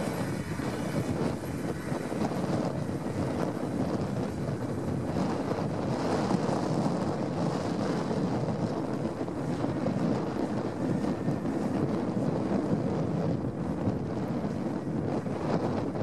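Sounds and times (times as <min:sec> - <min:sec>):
tractor diesel engine running: 0:00.0 - 0:06.4
wind buffeting microphone: 0:00.0 - 0:16.0.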